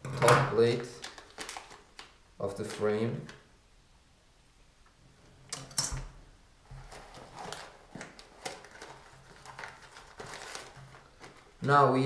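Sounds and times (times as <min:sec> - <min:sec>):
packaging bag rustling and crinkling: 0:00.6 - 0:03.4, 0:06.6 - 0:12.0.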